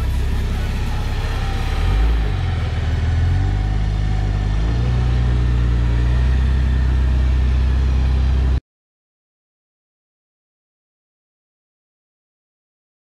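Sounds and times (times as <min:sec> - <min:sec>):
car engine running at low revs: 0:00.0 - 0:08.6.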